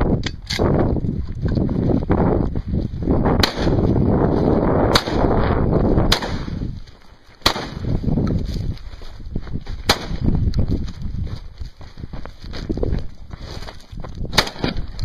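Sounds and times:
footsteps on gravel: 0:00.7 - 0:15.0
gunshot cracks: 0:03.4 - 0:03.8, 0:04.9 - 0:05.3, 0:06.1 - 0:06.6, 0:07.4 - 0:07.8, 0:09.9 - 0:10.2, 0:14.3 - 0:14.8.

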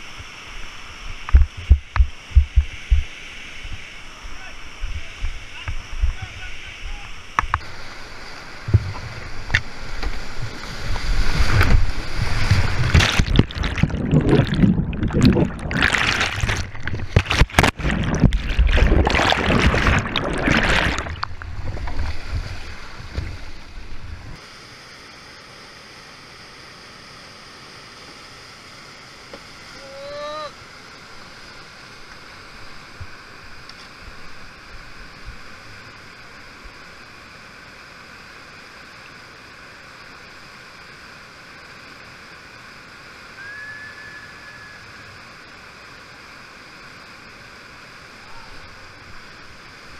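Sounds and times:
faint steady hiss: 0:00.0 - 0:13.2, 0:21.0 - 0:49.9
whitewater rushing and splashing: 0:00.6 - 0:24.3
rising whistle-like call: 0:43.3 - 0:45.2.

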